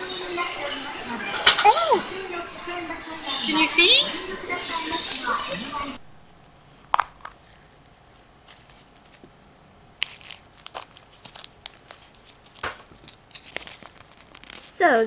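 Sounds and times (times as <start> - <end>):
plastic bag crinkling: 4.0 - 6.0, 9.9 - 15.0
plastic capsule snapping open: 6.9 - 7.4
paper being handled: 10.0 - 15.0.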